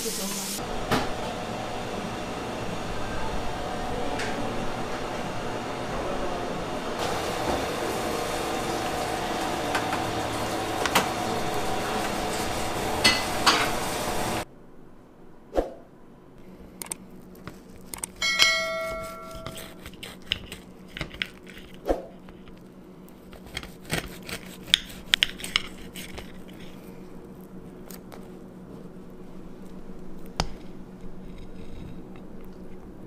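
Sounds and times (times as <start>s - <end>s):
ringing clink: 18.2s - 19.6s
cutlery scraping a glass plate: 18.2s - 21.7s.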